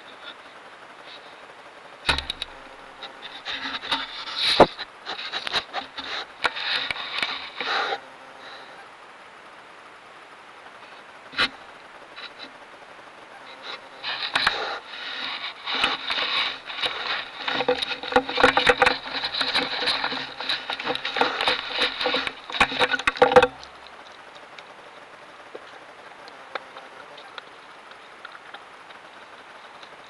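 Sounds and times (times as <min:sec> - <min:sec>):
faint hiss: 0:00.0 - 0:30.0
deer muzzle rubbing on microphone: 0:03.0 - 0:08.0, 0:13.5 - 0:23.6.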